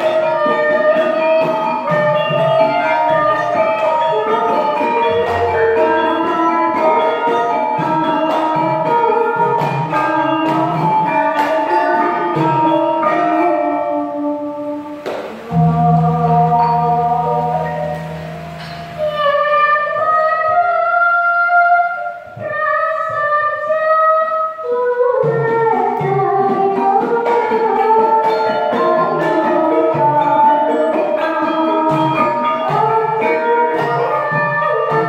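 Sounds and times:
gamelan ensemble playing: 0.0 - 20.0, 25.2 - 35.0
woman singing long gliding notes: 2.6 - 35.0.

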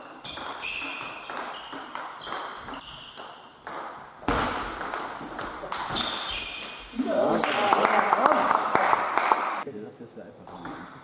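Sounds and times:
table tennis ball hits: 0.2 - 6.9, 10.5 - 11.0
ball bouncing on table: 0.3 - 6.8, 10.5 - 11.0.

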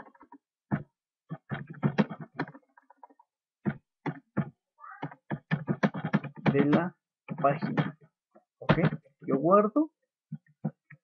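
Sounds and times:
keyboard typing: 0.0 - 8.1.

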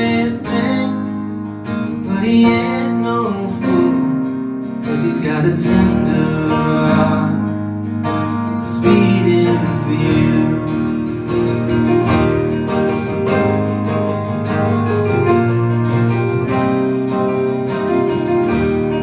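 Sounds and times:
person singing: 0.0 - 7.7, 8.6 - 11.2
acoustic country band playing: 0.0 - 19.0
strummed acoustic guitars: 0.0 - 19.0.

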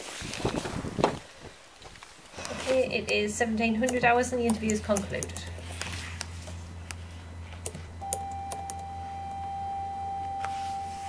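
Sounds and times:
low electrical hum: 0.0 - 11.0
scattered clicks: 2.4 - 8.9
steady electronic beep: 8.0 - 11.0.

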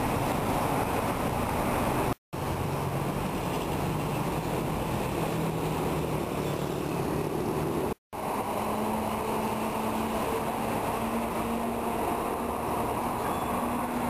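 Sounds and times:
city street traffic: 0.0 - 14.0.

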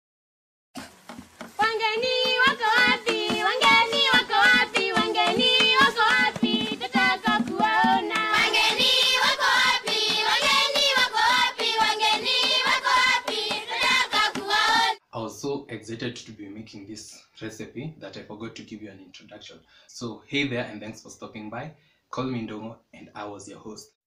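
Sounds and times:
music with steady beat: 0.8 - 15.0
person singing: 1.6 - 15.0.

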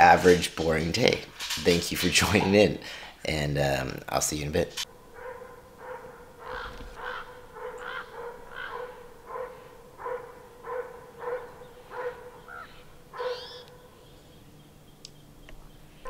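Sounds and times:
animal calling: 5.1 - 14.8.

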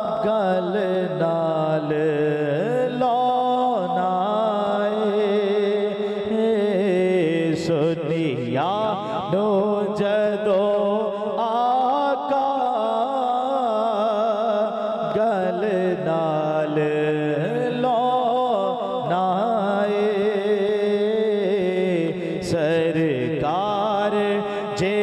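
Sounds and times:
man singing devotional song: 0.0 - 25.0.

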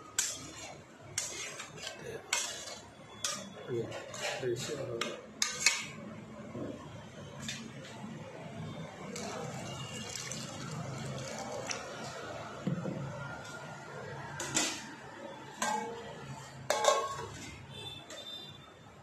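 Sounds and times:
water pouring into curry: 9.2 - 12.0
steel lid clanking on pan: 16.7 - 17.4.

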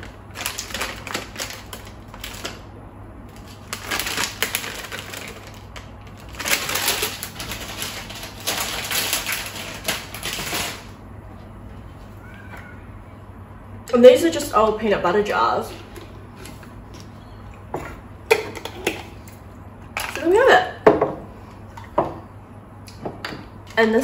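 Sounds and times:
plastic packet crinkling: 0.0 - 2.6, 3.3 - 11.0.

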